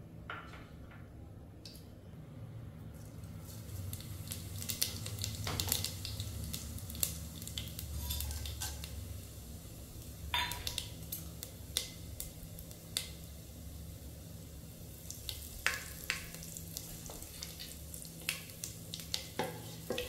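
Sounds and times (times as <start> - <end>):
metal utensil scraping a pan: 8.0 - 8.8.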